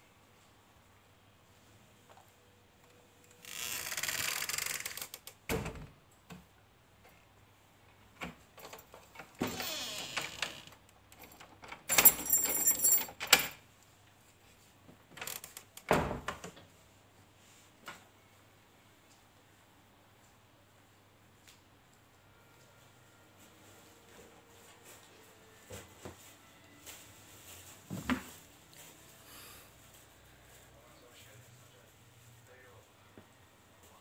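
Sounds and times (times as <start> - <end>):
metallic clinking clatter: 11.3 - 13.4.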